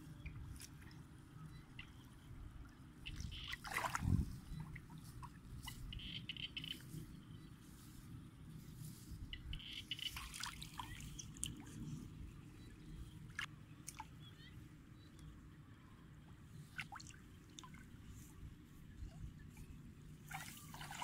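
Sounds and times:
faint steady background noise: 0:00.0 - 0:21.0
muddy water splashing: 0:02.9 - 0:06.8, 0:09.5 - 0:12.0, 0:16.6 - 0:21.0.

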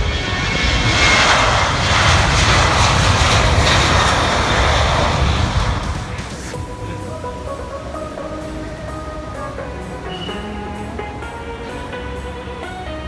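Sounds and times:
jet engines running loud: 0:00.0 - 0:13.0.

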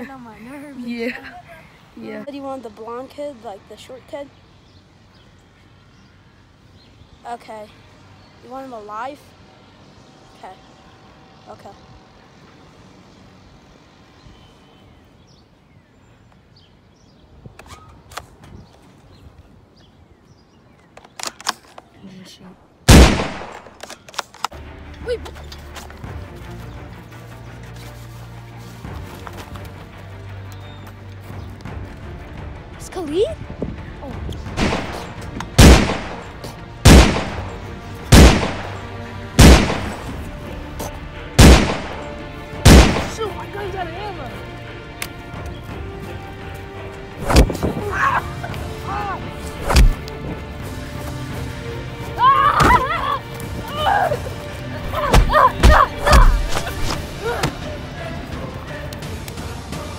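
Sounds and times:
echoing gunshots: 0:22.9 - 0:23.8, 0:34.6 - 0:40.2, 0:41.4 - 0:43.2
wind rumble on microphone: 0:33.2 - 0:34.6, 0:47.2 - 0:48.0.

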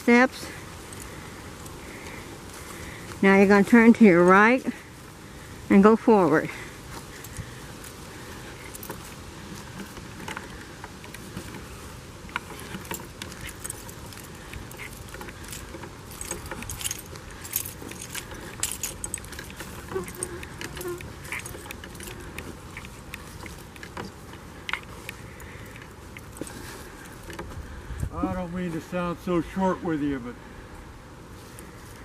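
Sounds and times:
footsteps crunching through dry leaves: 0:06.7 - 0:29.5
light clicks and rattles: 0:06.9 - 0:27.7.

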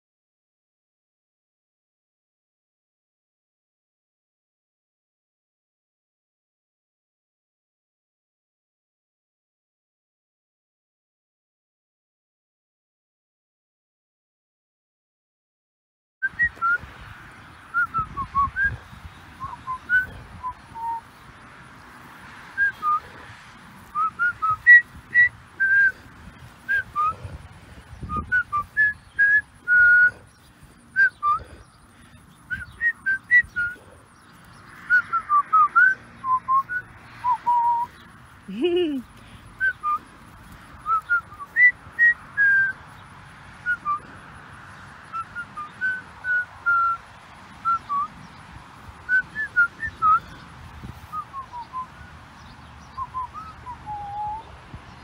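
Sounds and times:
lower call rising and falling: 0:16.2 - 0:44.2, 0:45.0 - 0:48.4, 0:49.0 - 0:54.6.

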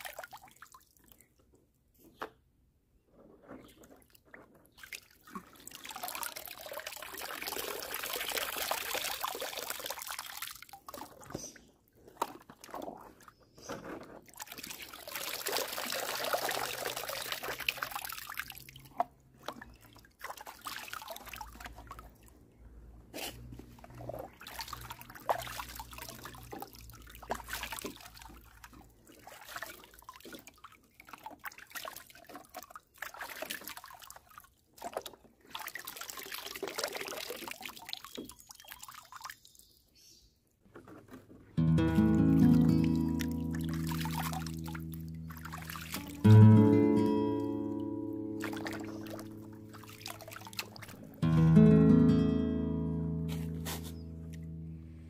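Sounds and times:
water pouring and dripping: 0:03.4 - 0:22.5, 0:23.4 - 0:39.6, 0:41.9 - 0:46.5, 0:47.3 - 0:51.3
water splashing: 0:04.7 - 0:13.3, 0:14.3 - 0:22.4, 0:23.6 - 0:39.4, 0:41.8 - 0:51.3.

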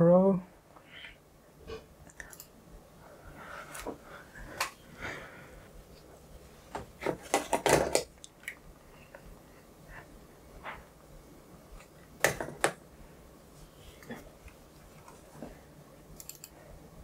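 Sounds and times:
handling noises at a desk: 0:06.6 - 0:08.2.

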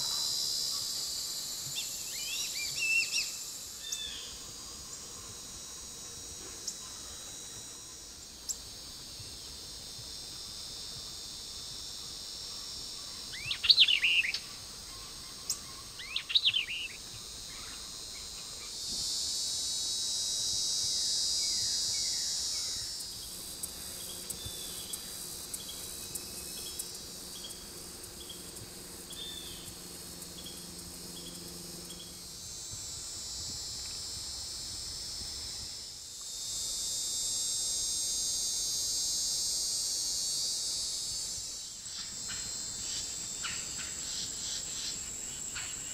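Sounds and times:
songbird calls: 0:01.8 - 0:04.4, 0:13.0 - 0:17.9.

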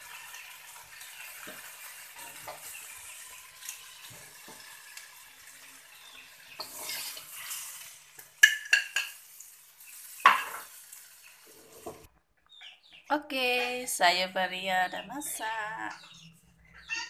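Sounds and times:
vegetables sizzling in a wok: 0:00.0 - 0:12.1
metal spatula scraping and clicking: 0:06.6 - 0:07.8.

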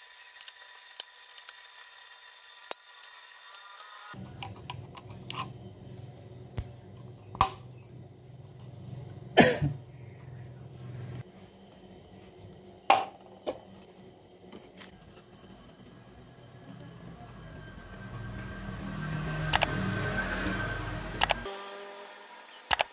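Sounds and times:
low steady hum: 0:04.1 - 0:21.5.

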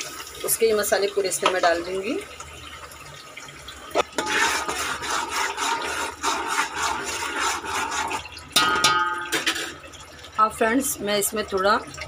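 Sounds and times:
paste sizzling in hot oil: 0:04.2 - 0:08.3.

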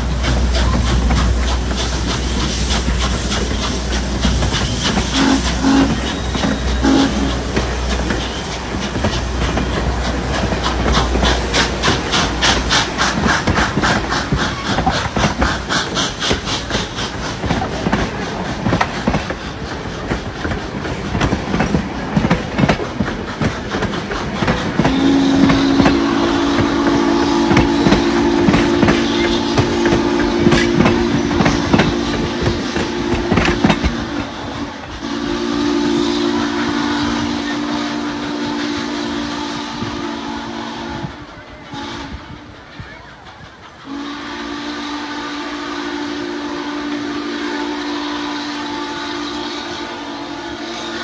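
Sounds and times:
train wheels clicking over rail joints: 0:00.0 - 0:51.0
steam locomotive chime whistle: 0:04.6 - 0:07.6, 0:24.8 - 0:34.1, 0:35.0 - 0:43.1, 0:43.9 - 0:51.0.

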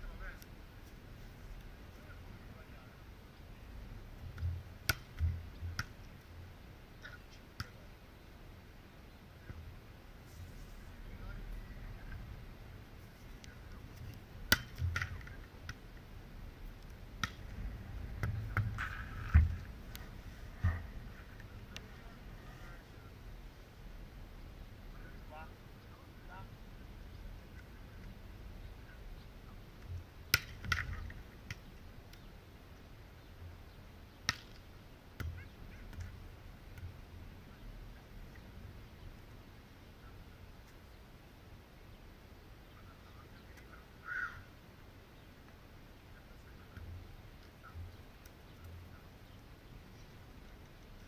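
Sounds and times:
faint low rumble: 0:00.0 - 0:34.1
volleyball being struck: 0:14.5 - 0:15.8.

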